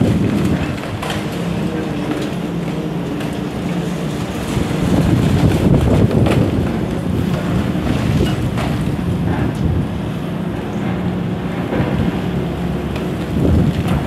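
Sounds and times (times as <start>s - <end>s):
concrete cracking and crunching: 0.0s - 9.6s
excavator diesel engines running: 0.0s - 14.0s
wind rumbling on microphone: 0.0s - 14.0s.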